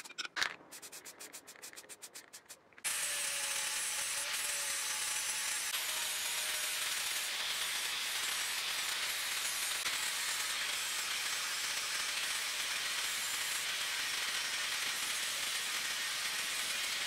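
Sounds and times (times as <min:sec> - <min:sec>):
angle grinder cutting steel: 0:02.8 - 0:17.0.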